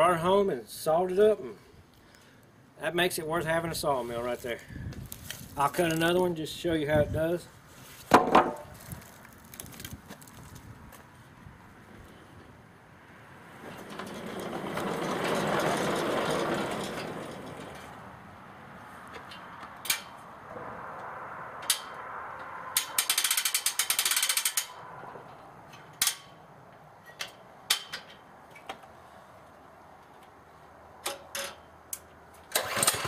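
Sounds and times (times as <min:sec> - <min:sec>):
saw head rumbling along track: 0:13.5 - 0:18.2
ratchet clicking rapidly: 0:22.8 - 0:24.8.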